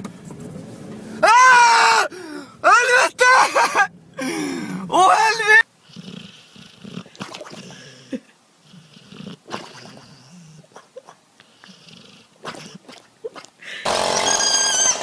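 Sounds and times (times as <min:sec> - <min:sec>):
hyena cub crying: 0:04.6 - 0:06.1
dog making soft sleep sounds: 0:05.8 - 0:13.6.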